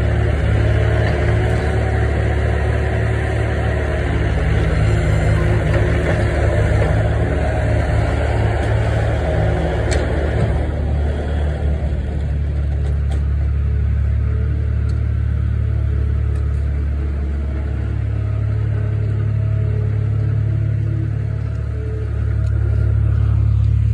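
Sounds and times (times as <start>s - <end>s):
diesel engine revving: 0.0s - 23.9s.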